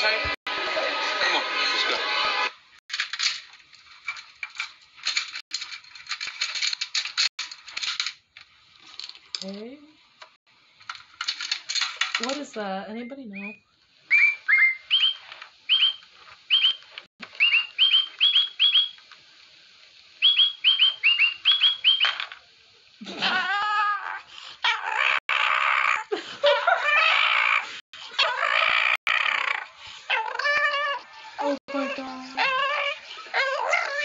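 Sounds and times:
high bird-like chirps: 13.3 - 19.0, 20.2 - 22.2
puppy whining and yowling: 23.1 - 34.0.

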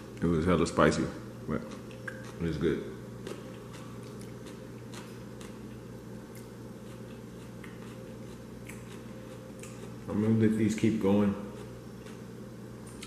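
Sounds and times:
steady low hum: 0.0 - 13.0
person chewing crunchy food: 1.6 - 2.5, 3.2 - 10.1, 11.5 - 13.0.

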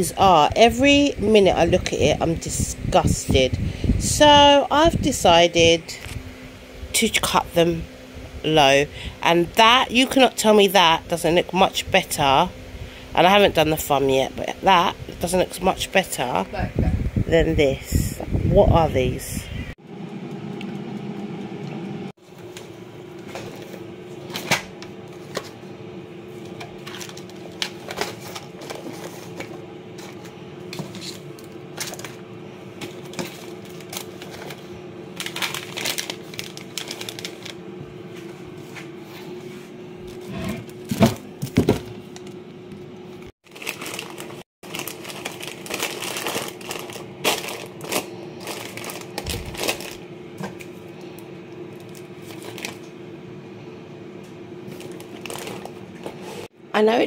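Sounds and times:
low hum: 0.0 - 43.3
snack wrappers crinkling: 32.9 - 37.6, 43.4 - 50.7, 51.7 - 52.9, 54.7 - 55.8.

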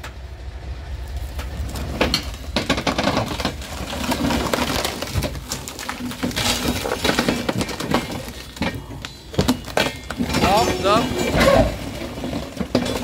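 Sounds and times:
low steady rumble: 0.0 - 5.7
wood cracking and creaking: 1.0 - 13.0.

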